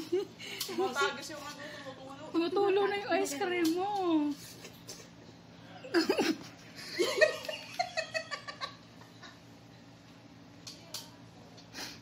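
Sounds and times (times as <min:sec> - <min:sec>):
woman laughing: 0:00.0 - 0:00.9, 0:05.8 - 0:09.4.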